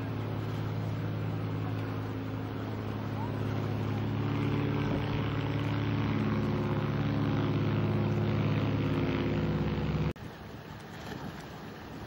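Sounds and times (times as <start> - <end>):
engine drone: 0.0 - 10.2
surf: 0.0 - 12.0
wind: 0.0 - 12.0.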